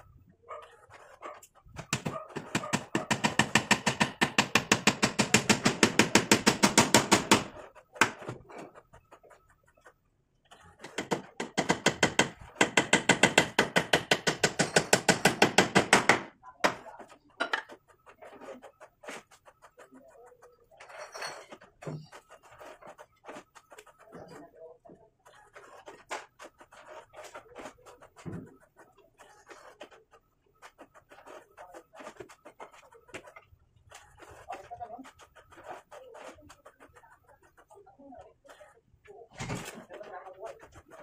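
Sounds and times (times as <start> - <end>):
hammer nailing into wood: 1.8 - 8.4, 10.8 - 16.8.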